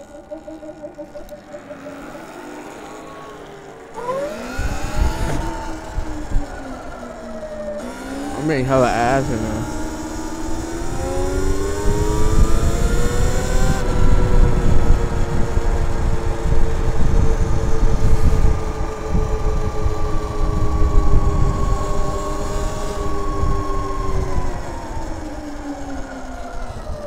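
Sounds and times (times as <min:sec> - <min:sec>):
electric motor whine: 0:00.0 - 0:27.0
wind rumble on microphone: 0:04.0 - 0:07.1, 0:09.2 - 0:25.9.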